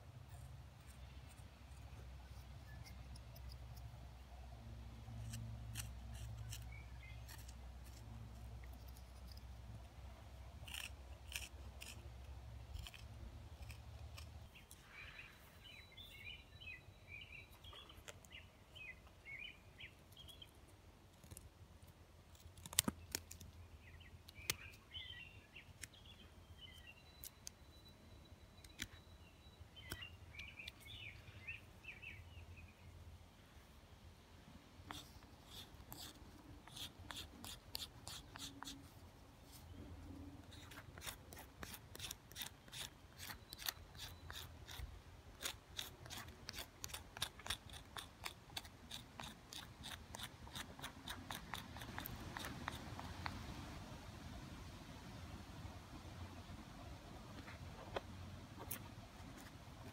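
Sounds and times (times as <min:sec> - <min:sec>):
knife shaving wood: 0:05.2 - 0:09.5, 0:10.6 - 0:14.9, 0:34.9 - 0:39.8, 0:40.4 - 0:53.4.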